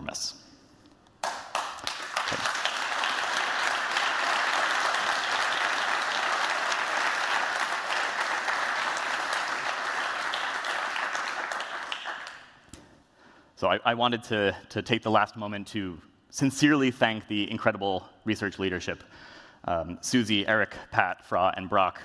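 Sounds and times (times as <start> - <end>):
audience applause: 1.2 - 12.6.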